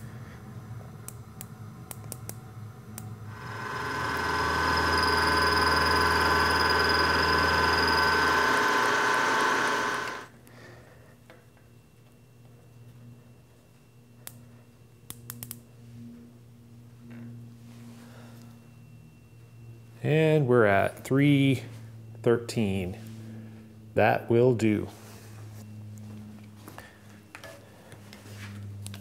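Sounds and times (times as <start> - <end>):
milling machine cutting steel: 3.3 - 10.3.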